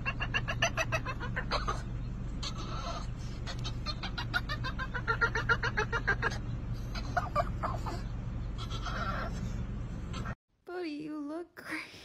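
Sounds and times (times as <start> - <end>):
car low hum: 0.0 - 10.4
dog whining yips: 0.1 - 9.5.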